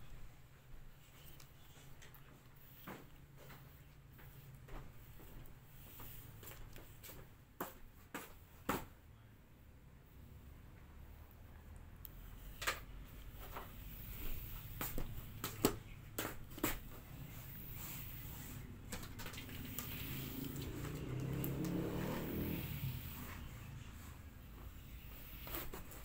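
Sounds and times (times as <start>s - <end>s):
brush clicking: 14.8s - 22.8s.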